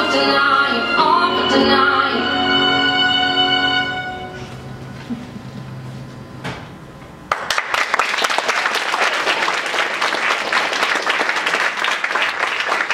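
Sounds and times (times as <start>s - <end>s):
audience applause: 7.3s - 12.9s.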